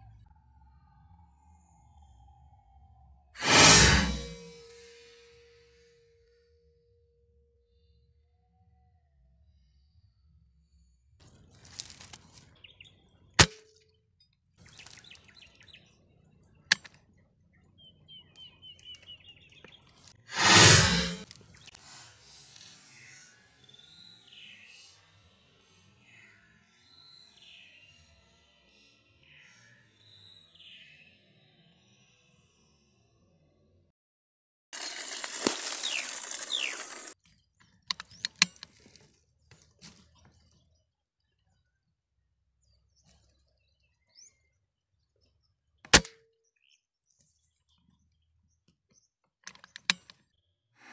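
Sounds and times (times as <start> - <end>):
sharp knock: 20.4 - 21.2.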